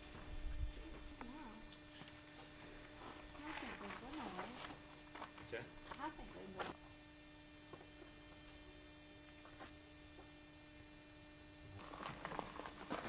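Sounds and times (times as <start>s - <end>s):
faint electrical hum: 0.0s - 13.0s
footsteps crunching on gravel: 2.2s - 6.8s, 9.2s - 10.4s, 11.7s - 13.0s.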